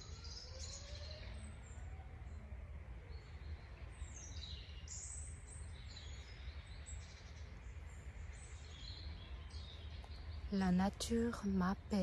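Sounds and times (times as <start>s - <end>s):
songbirds singing: 0.0s - 12.0s
steady low rumble: 5.0s - 12.0s.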